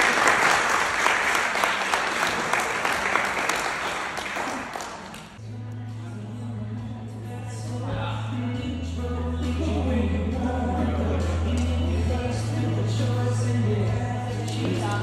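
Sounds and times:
crowd applause: 0:00.0 - 0:05.4
slow song with low held note: 0:05.4 - 0:15.0.

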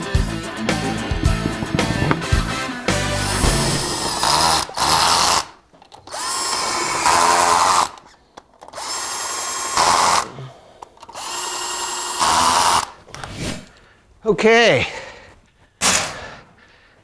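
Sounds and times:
cordless drill whining: 0:03.0 - 0:08.1, 0:08.7 - 0:10.3, 0:11.0 - 0:13.0.

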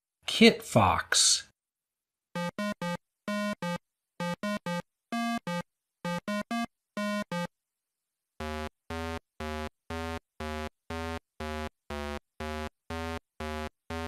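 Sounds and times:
chiptune synthesizer music: 0:02.4 - 0:07.5, 0:08.4 - 0:14.0.

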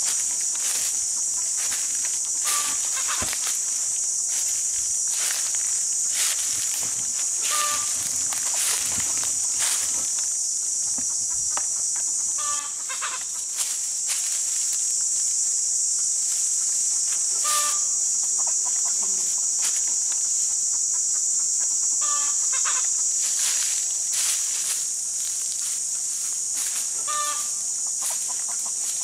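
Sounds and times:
high-pitched insect drone: 0:00.0 - 0:29.0
chicken clucking: 0:00.5 - 0:03.4, 0:06.9 - 0:10.0, 0:11.0 - 0:13.5, 0:17.4 - 0:22.9, 0:26.8 - 0:29.0.

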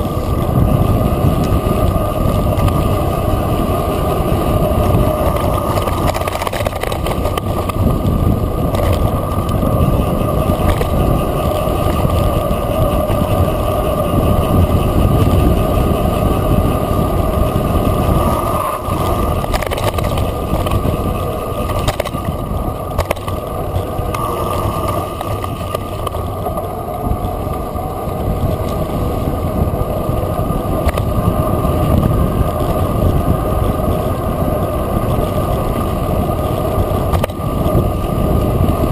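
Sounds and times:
bike knocks and rattles: 0:00.0 - 0:38.9
bike tyres rumbling on dirt: 0:00.0 - 0:38.9
wind buffeting microphone: 0:00.0 - 0:38.9.

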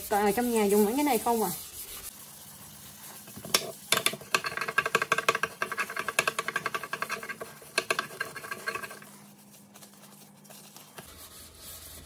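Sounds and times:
sponge scrubbing a sink with squeak: 0:00.0 - 0:03.9.

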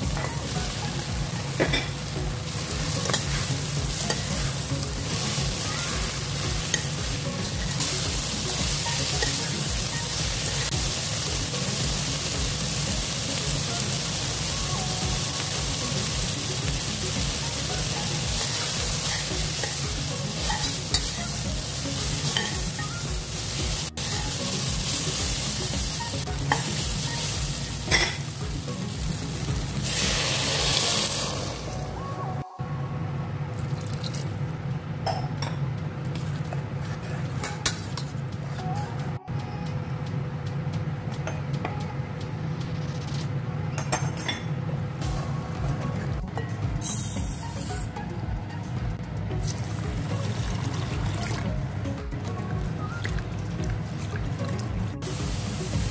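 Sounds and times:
food sizzling in oil: 0:00.0 - 0:31.9, 0:49.4 - 0:51.8, 0:52.7 - 0:55.9.

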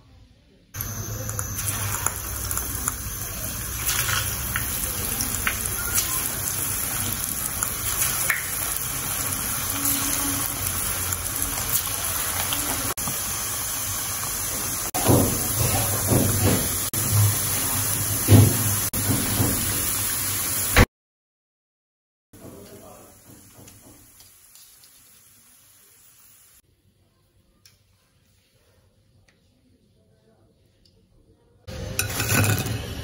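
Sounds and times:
oil sizzling in a pan: 0:00.8 - 0:20.9, 0:22.4 - 0:26.6.

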